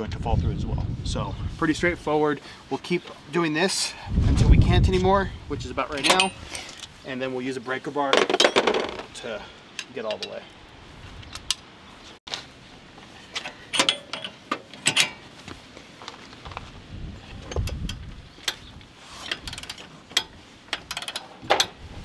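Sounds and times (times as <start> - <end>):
metal clinks: 6.0 - 6.4
ratchet clicks: 17.6 - 21.8.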